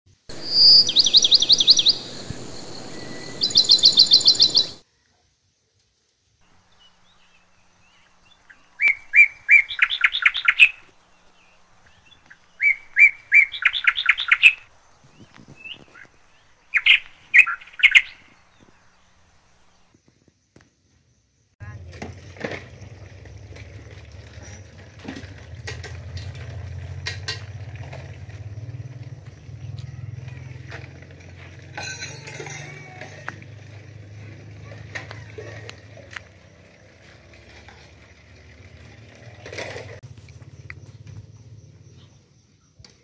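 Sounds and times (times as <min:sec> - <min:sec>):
songbird trilling: 0:00.3 - 0:04.8, 0:06.7 - 0:19.9.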